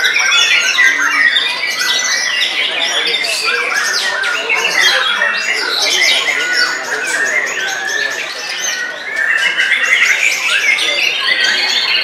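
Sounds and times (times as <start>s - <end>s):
birds singing whistles and trills: 0.0s - 12.0s.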